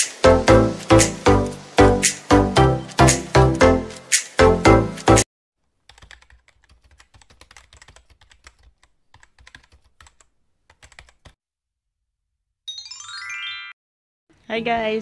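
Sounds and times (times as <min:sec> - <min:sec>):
loud music: 0:00.0 - 0:05.2
computer keyboard typing: 0:05.8 - 0:11.4.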